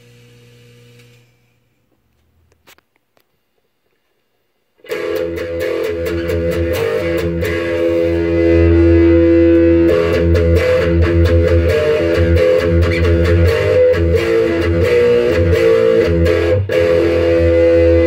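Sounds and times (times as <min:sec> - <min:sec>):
electric guitar chords ringing: 0:04.8 - 0:18.0.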